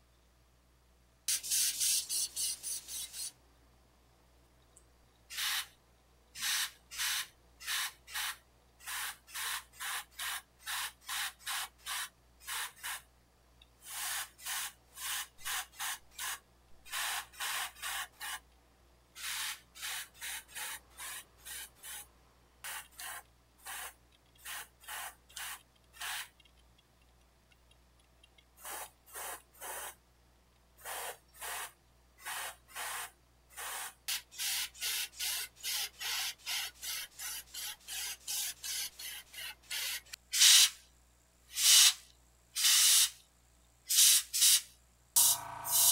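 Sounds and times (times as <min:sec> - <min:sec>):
airbrush spraying bursts: 0:01.3 - 0:03.3, 0:05.3 - 0:05.7, 0:06.4 - 0:13.1, 0:13.8 - 0:18.4, 0:19.2 - 0:26.3, 0:28.6 - 0:30.0, 0:30.8 - 0:40.8, 0:41.5 - 0:42.0, 0:42.6 - 0:43.2, 0:43.9 - 0:45.9.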